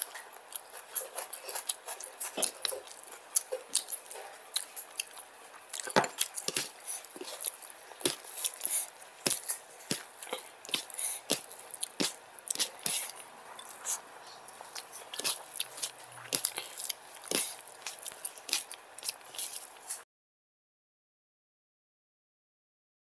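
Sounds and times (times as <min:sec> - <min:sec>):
open-mouthed chewing with lip smacks: 0:00.0 - 0:20.0
fingers squishing rice into curry: 0:06.2 - 0:20.0.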